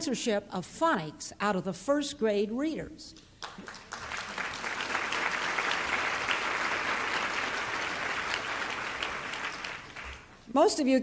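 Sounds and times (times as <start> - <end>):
audience applauding: 3.4 - 10.4.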